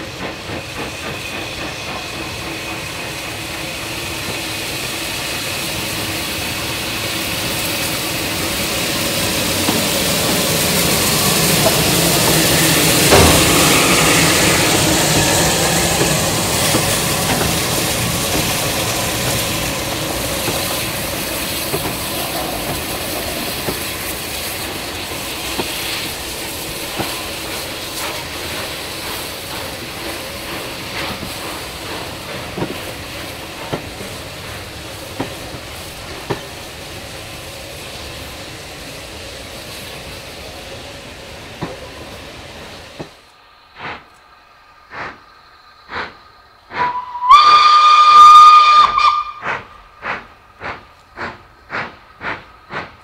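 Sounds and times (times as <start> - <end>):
steam locomotive exhaust and hiss: 0.0 - 53.0
steam locomotive exhaust beats: 0.0 - 53.0
loud steam whistle blast: 46.7 - 49.7.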